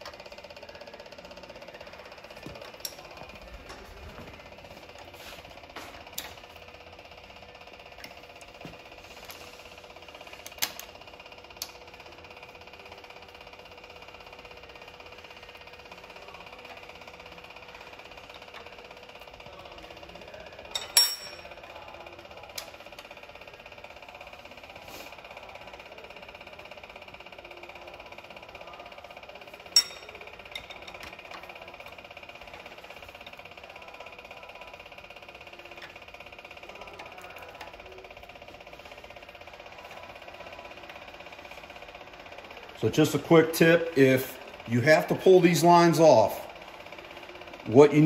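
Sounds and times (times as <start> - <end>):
rapidly pulsing mechanical hum: 0.0 - 48.0
wrench clinking on metal nuts: 20.7 - 21.5, 29.7 - 31.0.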